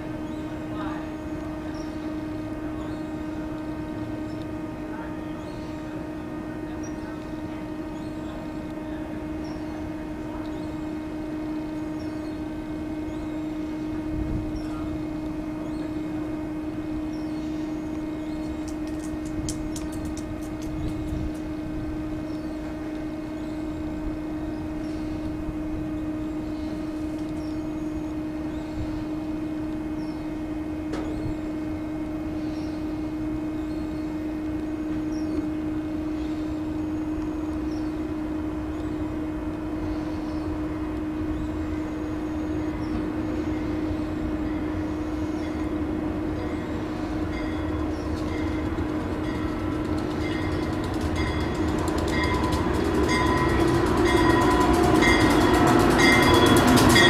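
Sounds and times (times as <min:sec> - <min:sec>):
electric locomotive hum: 0:00.0 - 0:57.0
low train rumble: 0:00.0 - 0:57.0
sharp clicks: 0:18.6 - 0:21.5.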